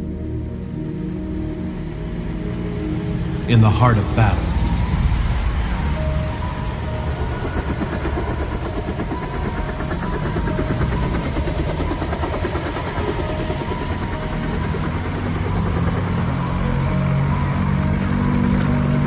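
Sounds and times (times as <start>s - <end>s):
fluttering engine-like rumble: 4.4s - 19.0s.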